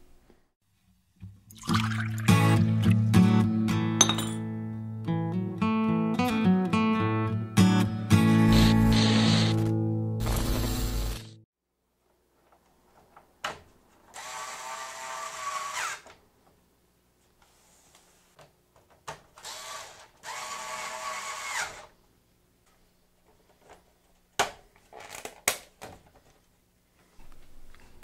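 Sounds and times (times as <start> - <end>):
electric screwdriver whine: 8.5 - 11.3.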